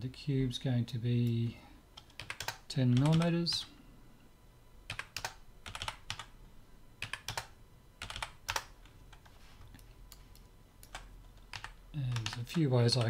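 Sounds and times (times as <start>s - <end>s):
keyboard keys tapping: 4.9s - 6.3s, 7.0s - 13.0s.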